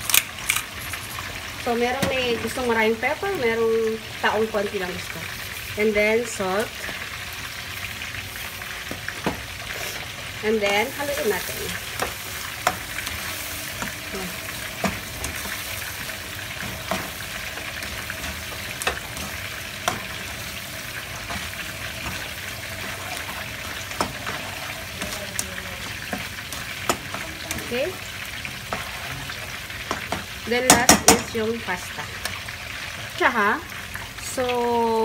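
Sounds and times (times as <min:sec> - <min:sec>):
food sizzling in a pan: 0:00.0 - 0:35.0
spatula scraping a pan: 0:09.6 - 0:10.2, 0:10.8 - 0:27.7.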